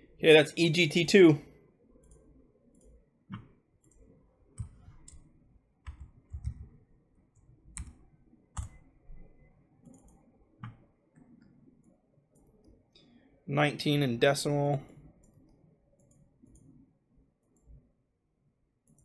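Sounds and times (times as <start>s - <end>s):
computer mouse clicks: 2.0s - 6.8s, 7.4s - 8.8s, 9.8s - 13.1s, 14.9s - 16.8s.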